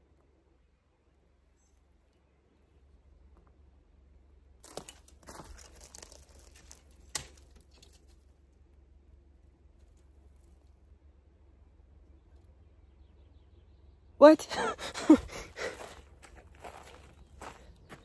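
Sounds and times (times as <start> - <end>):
footsteps crunching through dry twigs: 4.6 - 8.0, 15.3 - 18.0
twig snapping: 4.6 - 8.0.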